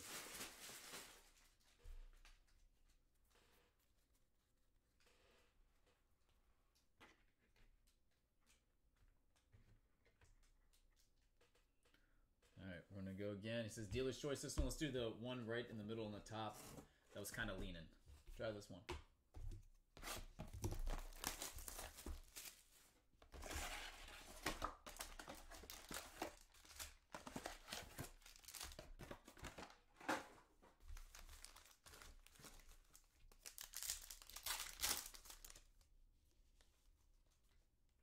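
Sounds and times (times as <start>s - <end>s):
plastic wrap and foil crinkling: 0.0s - 1.8s, 20.7s - 29.8s, 30.8s - 35.8s.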